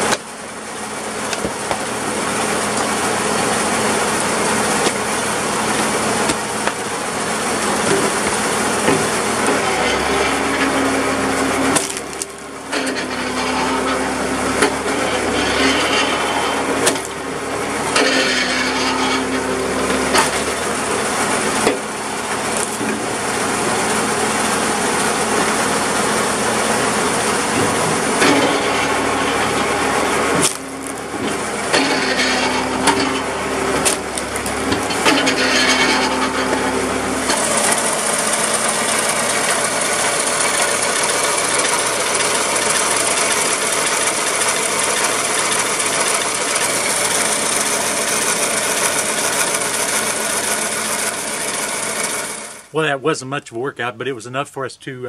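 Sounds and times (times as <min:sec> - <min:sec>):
hydraulic pump tone: 0:00.0 - 0:52.8
tractor engine running: 0:00.0 - 0:55.0
wood splitting cracks: 0:04.8 - 0:05.1, 0:05.8 - 0:07.0, 0:07.8 - 0:13.9, 0:16.1 - 0:17.3, 0:21.6 - 0:23.1, 0:27.6 - 0:36.6.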